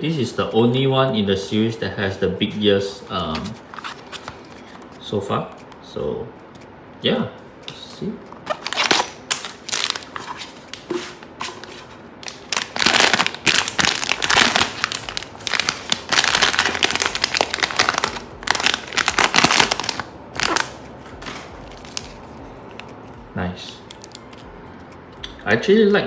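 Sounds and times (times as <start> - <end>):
packaging crinkling: 8.4 - 10.9, 11.5 - 23.2, 23.9 - 25.0.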